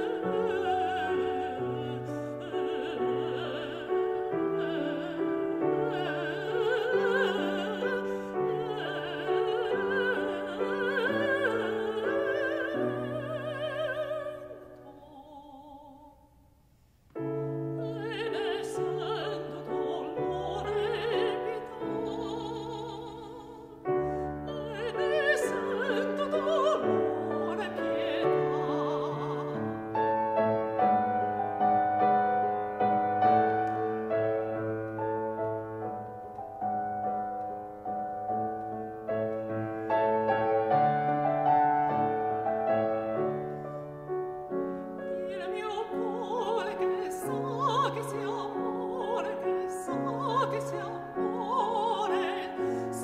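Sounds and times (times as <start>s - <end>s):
piano accompaniment: 0.0s - 15.0s, 17.2s - 53.0s
woman singing operatic song: 0.0s - 16.4s, 17.2s - 34.6s, 44.5s - 53.0s.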